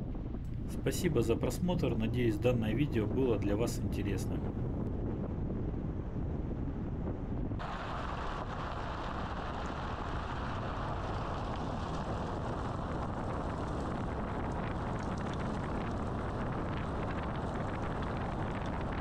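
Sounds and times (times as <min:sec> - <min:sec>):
tyre and wind rumble: 0:00.0 - 0:19.0.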